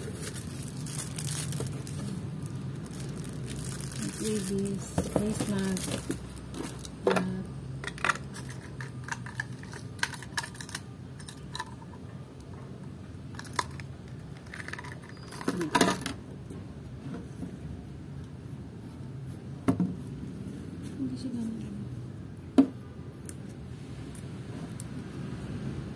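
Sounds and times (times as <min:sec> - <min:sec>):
plastic crinkling: 0:00.0 - 0:07.0.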